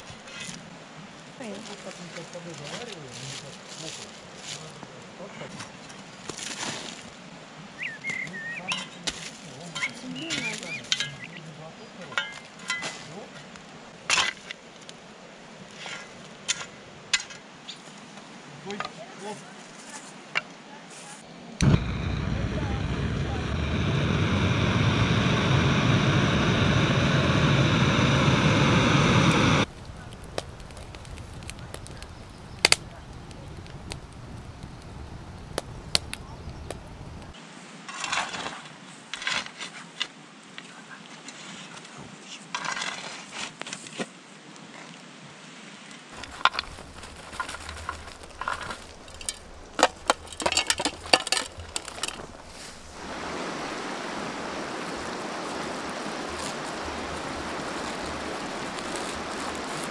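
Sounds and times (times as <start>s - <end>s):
shovel scraping through ash and stones: 0.0s - 0.6s, 37.9s - 39.9s, 42.5s - 44.0s, 46.2s - 53.0s, 56.2s - 59.9s
blowtorch hissing: 21.6s - 37.4s, 46.2s - 59.9s
wood fire crackling and popping: 21.6s - 37.4s, 46.2s - 59.9s.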